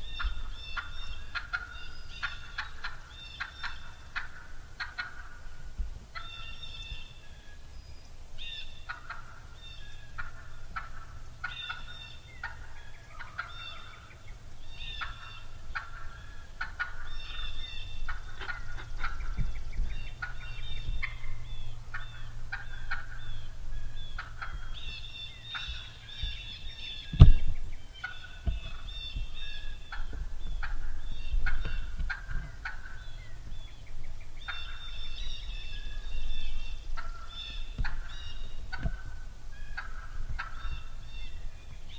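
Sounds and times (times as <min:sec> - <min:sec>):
turkey clucking: 0:00.0 - 0:07.2, 0:08.4 - 0:41.3
loud thump: 0:27.1 - 0:27.6.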